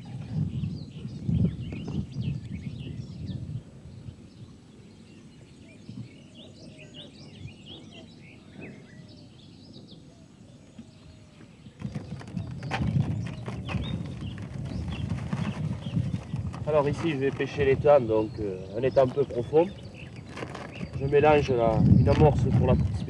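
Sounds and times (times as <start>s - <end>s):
rustling and knocking in plastic bucket: 11.8s - 17.8s, 18.9s - 23.0s.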